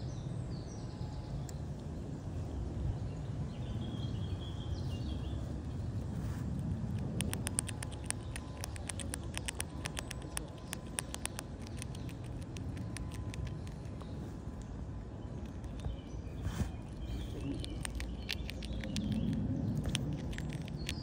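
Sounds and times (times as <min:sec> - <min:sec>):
squirrel crunching noodles: 0:05.4 - 0:21.0.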